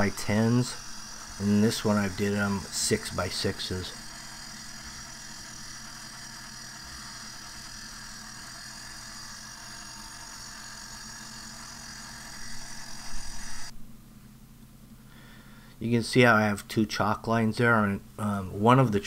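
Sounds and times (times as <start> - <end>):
concrete saw cutting: 0.0 - 13.7
dust extraction vacuum running: 0.0 - 13.8.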